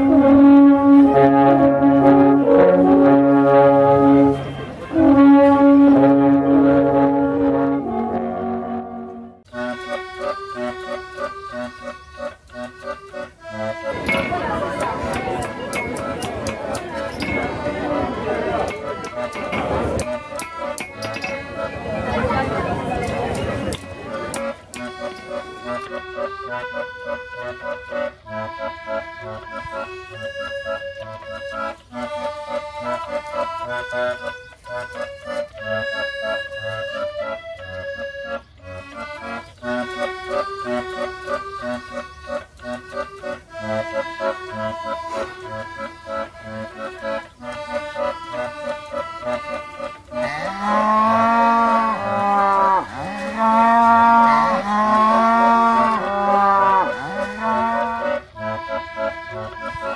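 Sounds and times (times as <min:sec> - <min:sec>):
accordion music with bass beat: 0:00.0 - 0:59.9
cow mooing: 0:50.2 - 0:58.2.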